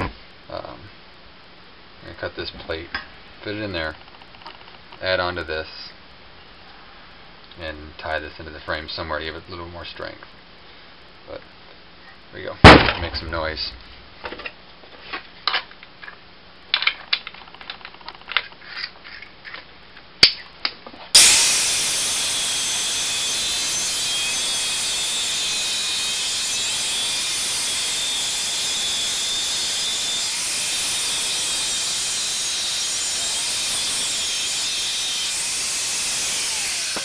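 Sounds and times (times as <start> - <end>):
angle grinder cutting steel: 21.2 - 37.0.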